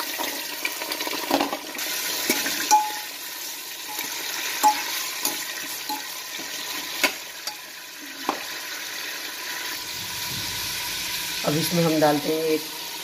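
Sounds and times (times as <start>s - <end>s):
meat sizzling in oil: 0.0s - 13.0s
steel spoon clinking pot: 2.2s - 3.2s, 3.9s - 6.2s, 7.0s - 7.7s.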